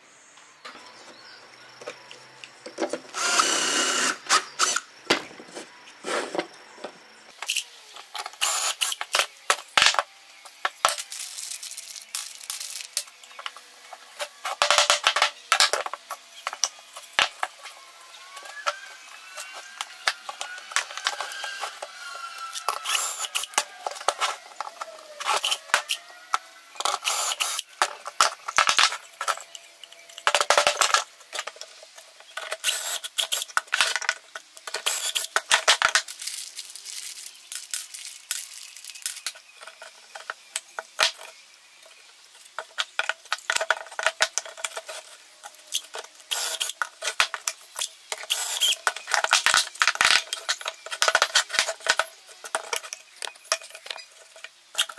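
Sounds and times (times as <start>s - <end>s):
cordless drill boring: 3.1s - 4.8s, 8.4s - 9.0s, 18.4s - 26.0s, 26.9s - 27.6s, 32.6s - 33.3s, 46.3s - 46.8s, 48.3s - 48.8s.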